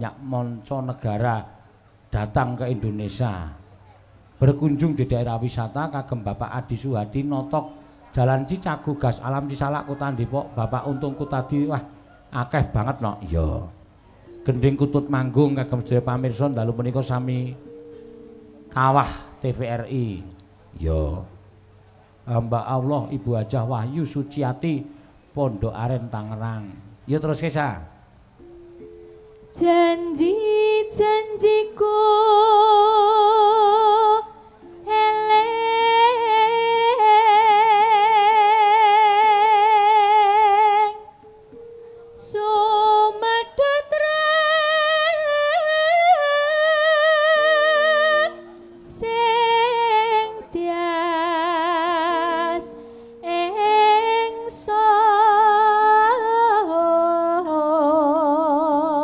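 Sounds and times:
soft gamelan accompaniment: 2.9 - 59.0
woman singing into a microphone: 29.5 - 41.3, 42.1 - 59.0.

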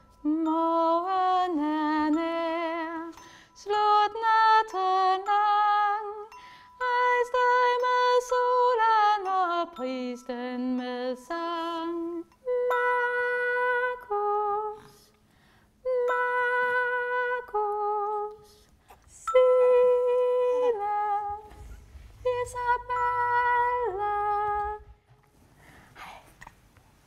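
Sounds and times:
woman humming a slow melody: 15.8 - 25.1.

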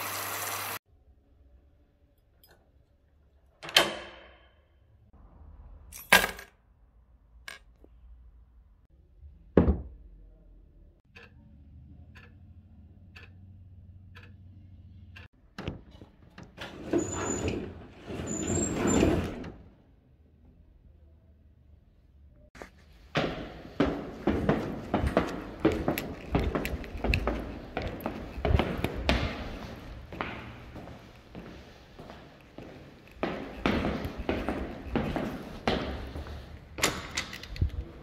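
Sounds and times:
rushing noise with high squeaks: 16.6 - 19.7
footsteps on wooden floor: 22.6 - 36.6.

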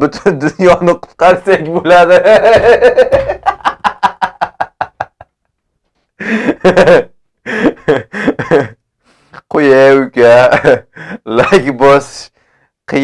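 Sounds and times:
man laughing hard: 1.9 - 5.4, 6.2 - 8.8, 10.4 - 11.6.

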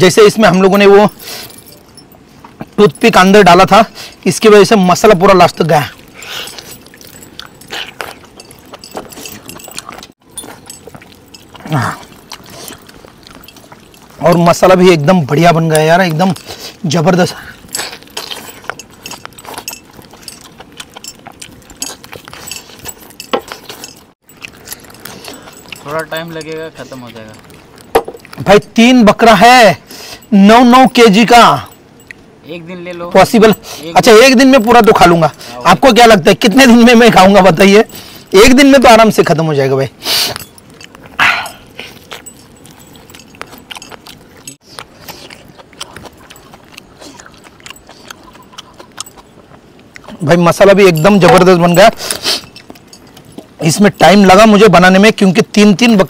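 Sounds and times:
chewing: 0.3 - 56.0
biting and tearing meat: 5.8 - 28.9, 40.2 - 54.4
rings clinking against steel plate: 18.5 - 24.2, 50.9 - 54.0.

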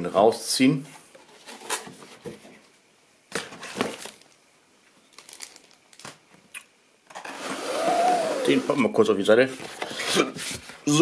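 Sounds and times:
plastic packaging crinkling: 3.3 - 4.4, 5.0 - 6.6.

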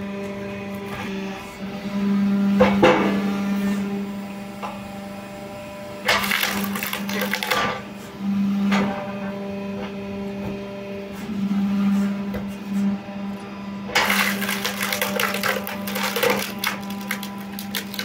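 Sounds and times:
log splitter humming: 6.1 - 7.8, 13.9 - 18.0
loud crackling scraping: 14.0 - 18.0.

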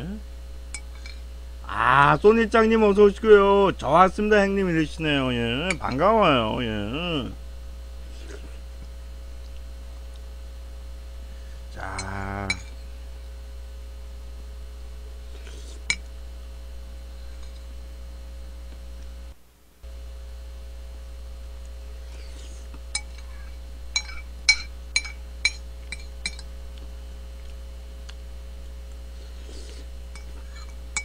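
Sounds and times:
steady low hum: 0.0 - 31.0
metal spoon clinking on a plate: 23.9 - 26.5.

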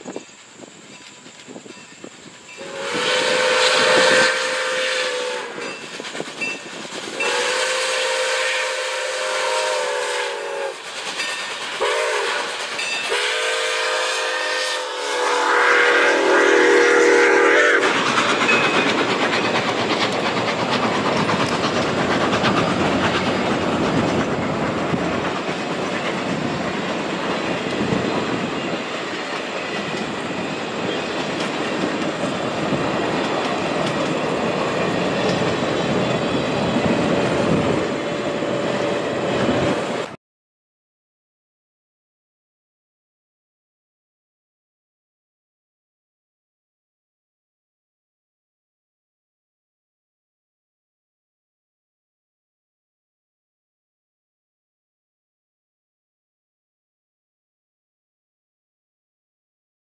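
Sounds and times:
steam locomotive whistle: 2.5 - 18.9
train wheels clacking on rails: 5.5 - 7.6, 10.4 - 13.4, 17.4 - 40.2.

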